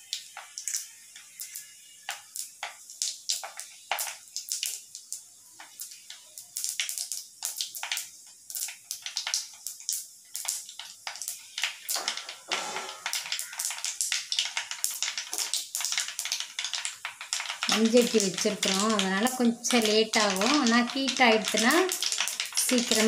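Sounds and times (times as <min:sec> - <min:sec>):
seeds crackling in hot oil: 0:00.0 - 0:23.0.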